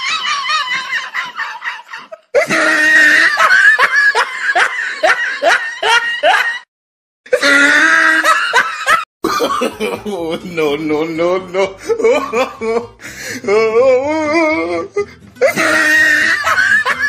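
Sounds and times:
rhythmic laughter: 0:00.0 - 0:06.7, 0:15.4 - 0:17.0.

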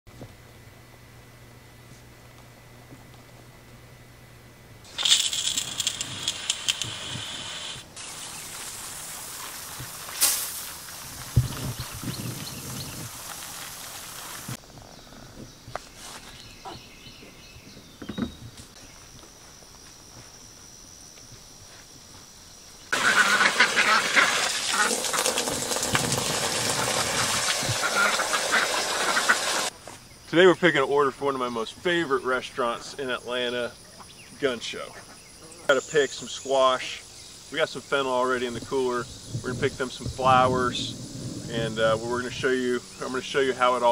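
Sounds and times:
hose nozzle spraying water: 0:04.9 - 0:14.6, 0:23.0 - 0:29.7
ducks quacking: 0:22.9 - 0:25.4, 0:27.2 - 0:29.7.

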